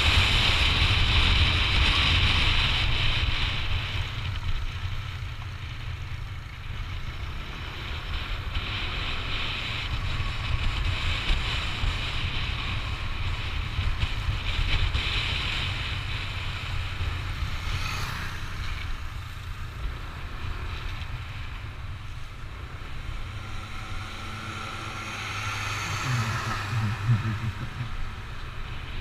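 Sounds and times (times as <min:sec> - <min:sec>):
road noise: 0:00.0 - 0:29.0
scooter engine: 0:00.0 - 0:29.0.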